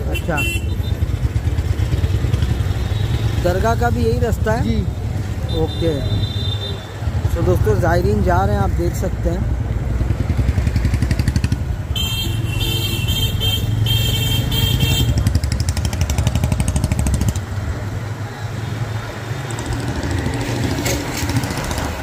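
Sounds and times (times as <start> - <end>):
vehicle horn beeping: 0.1 - 1.0, 11.9 - 15.2
motorcycle engine running: 0.4 - 5.0, 9.2 - 12.1, 13.6 - 17.8.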